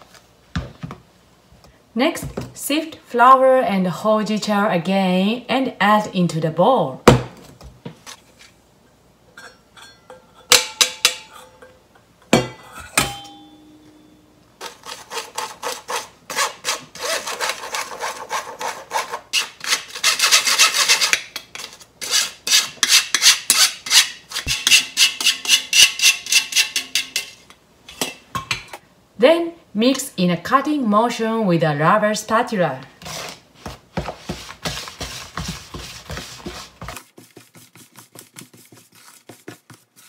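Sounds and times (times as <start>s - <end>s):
spoon scraping through a mesh sieve: 14.6s - 27.4s.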